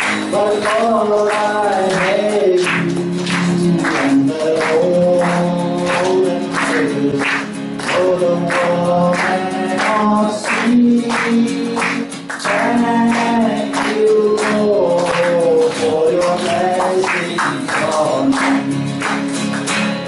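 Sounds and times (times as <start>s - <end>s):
man singing worship song: 0.0s - 19.1s
acoustic guitar strumming: 0.0s - 20.0s.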